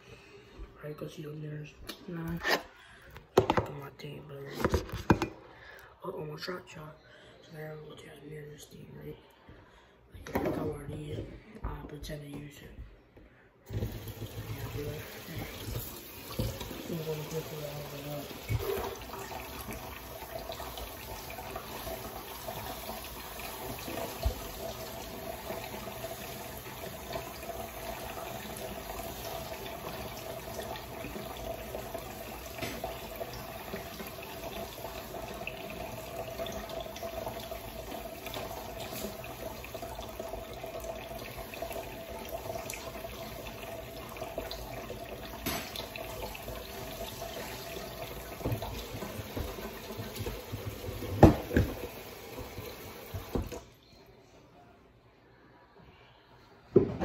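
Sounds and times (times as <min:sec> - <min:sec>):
faucet water splashing into sink: 0:13.7 - 0:53.7.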